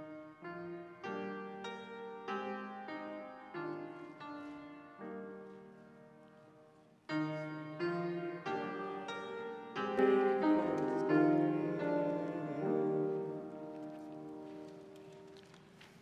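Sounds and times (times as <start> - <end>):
slow keyboard chords: 5.2 - 16.0.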